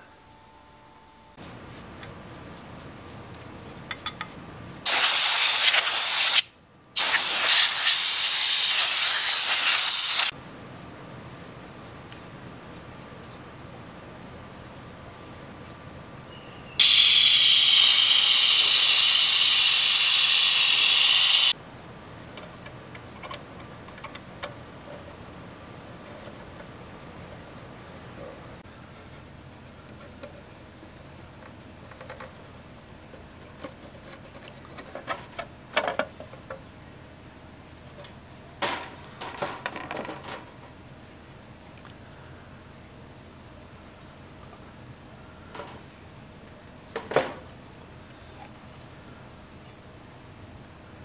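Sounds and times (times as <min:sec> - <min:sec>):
spray can hissing: 0:04.9 - 0:10.3, 0:16.8 - 0:21.6.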